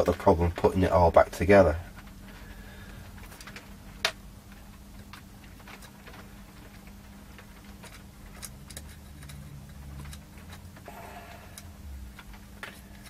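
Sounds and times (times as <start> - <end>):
steady low hum: 0.0 - 13.0
metal chassis and screws clicking: 7.7 - 10.9.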